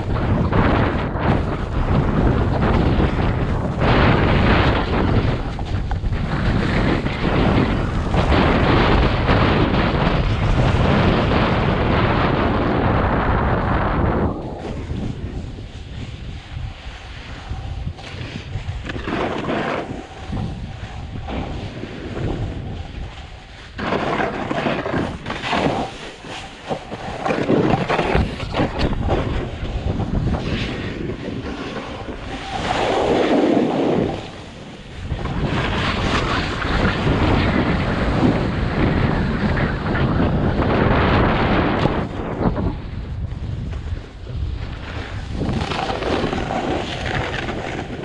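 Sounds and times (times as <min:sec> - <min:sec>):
snowboard scraping packed snow: 0:00.0 - 0:48.0
wind noise on microphone: 0:00.0 - 0:48.0.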